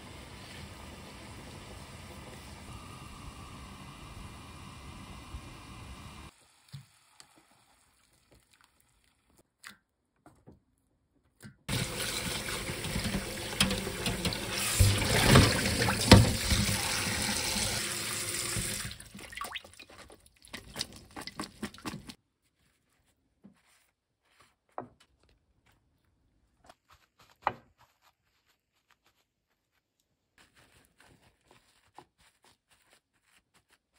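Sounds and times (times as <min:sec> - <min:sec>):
tap water running into strainer: 0:11.7 - 0:22.2
water splashing: 0:11.7 - 0:22.2
faint handling sounds: 0:22.2 - 0:33.9.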